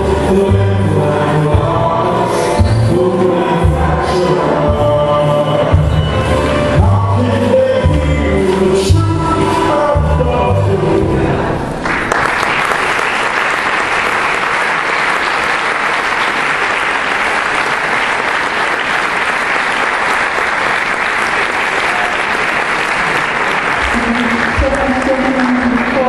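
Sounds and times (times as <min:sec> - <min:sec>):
audience applause: 0:11.7 - 0:26.0.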